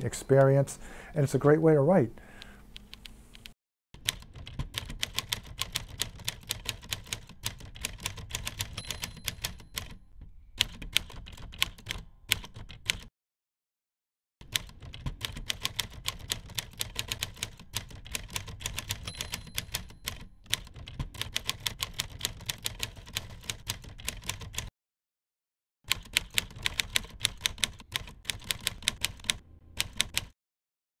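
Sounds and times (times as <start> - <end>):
typewriter keys striking: 4.0 - 10.0, 10.6 - 13.1, 14.4 - 24.7, 25.9 - 30.4.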